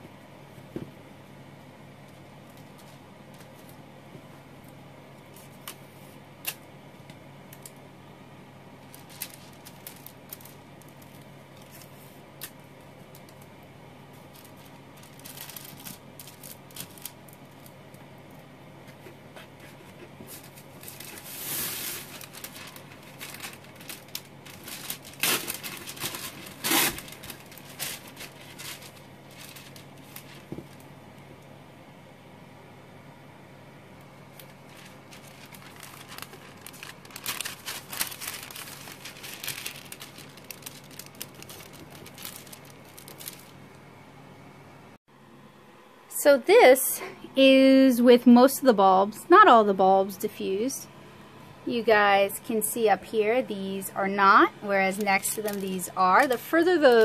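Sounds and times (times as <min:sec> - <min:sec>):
wax paper crinkling: 0:02.1 - 0:07.9, 0:08.6 - 0:30.9, 0:34.1 - 0:43.8, 0:53.5 - 0:57.0
sharp crackles or rips: 0:20.3 - 0:30.5, 0:34.3 - 0:43.6.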